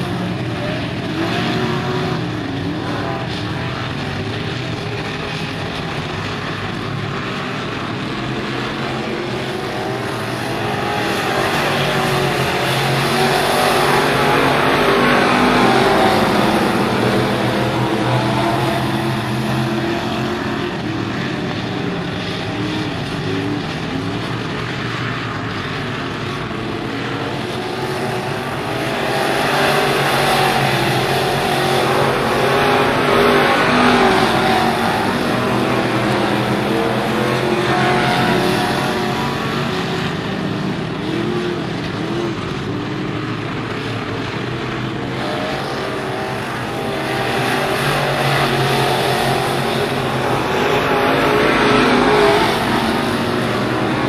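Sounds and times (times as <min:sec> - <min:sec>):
race car engines revving: 0:00.0 - 0:54.0.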